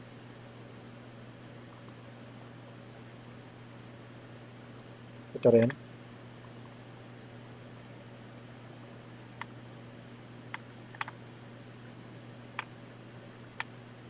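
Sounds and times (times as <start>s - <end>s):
steady low hum: 0.0s - 14.0s
mouse and keyboard clicks: 5.6s - 6.0s, 9.3s - 9.9s, 10.5s - 11.2s, 13.3s - 13.7s.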